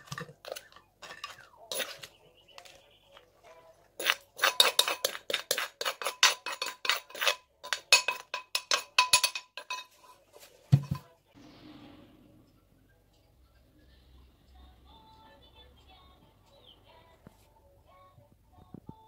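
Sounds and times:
metal spoon clinking on clay: 0.0s - 2.8s, 4.0s - 11.2s.

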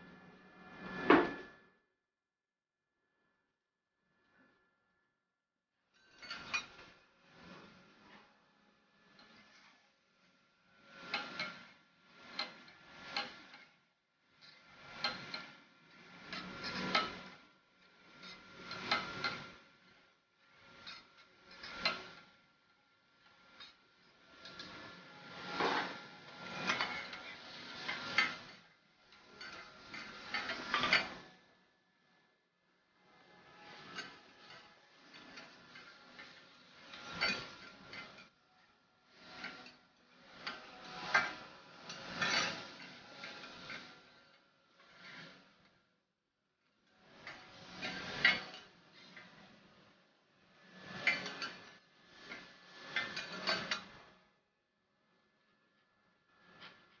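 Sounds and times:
metal spatulas scraping on griddle: 0.5s - 1.6s, 6.0s - 6.9s, 11.1s - 11.6s, 16.2s - 17.2s, 18.2s - 19.5s, 20.8s - 22.2s, 24.4s - 28.6s, 29.2s - 31.2s, 33.6s - 38.3s, 40.4s - 43.9s, 50.8s - 54.0s
spatulas clicking on steel griddle: 11.1s - 11.6s, 25.5s - 28.5s, 29.3s - 31.2s, 33.7s - 38.3s, 50.8s - 51.6s.

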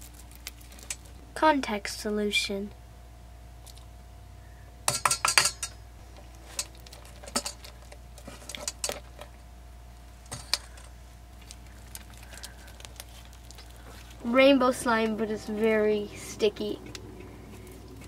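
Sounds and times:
utensils clinking on metal bowl: 4.9s - 5.8s, 6.5s - 9.2s, 10.3s - 10.9s.

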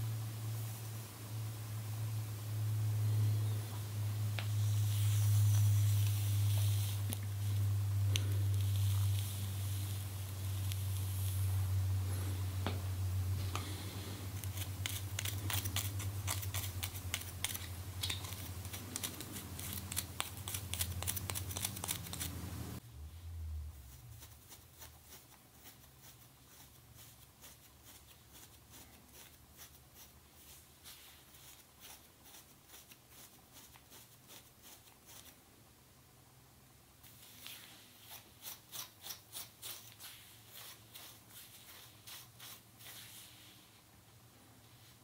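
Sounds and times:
low hum: 0.0s - 24.3s
fingers scratching skin: 14.4s - 22.4s.

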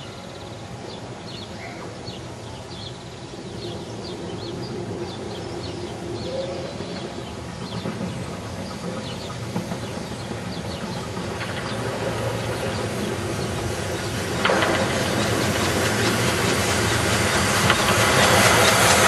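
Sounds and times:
small birds chirping: 0.0s - 14.5s
low rumble of approaching train: 0.0s - 19.0s.

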